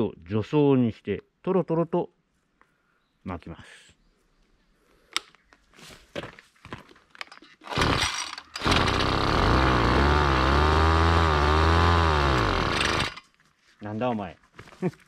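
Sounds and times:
recoil starter pull: 7.6s - 13.2s
small engine running: 7.7s - 13.2s.

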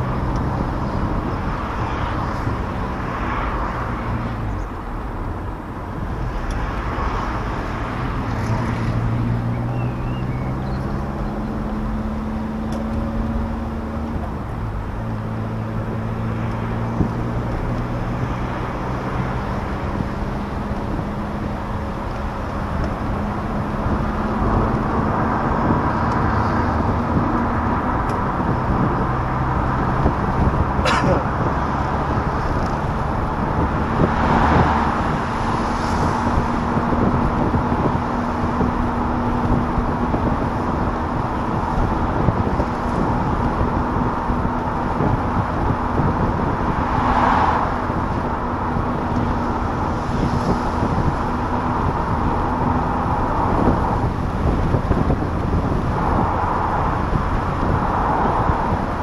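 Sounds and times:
wind noise: 0.0s - 59.0s.

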